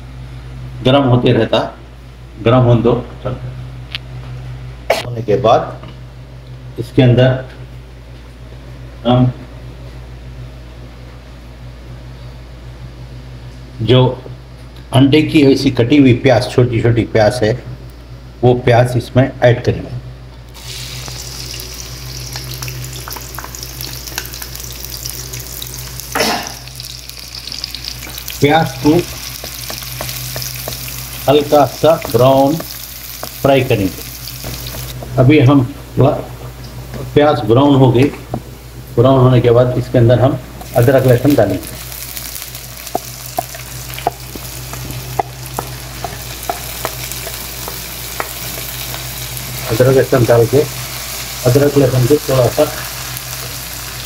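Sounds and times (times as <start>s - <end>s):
onions sizzling in hot oil: 20.6s - 35.0s, 40.6s - 54.0s
spatula tapping pan: 28.8s - 33.4s, 42.8s - 49.1s.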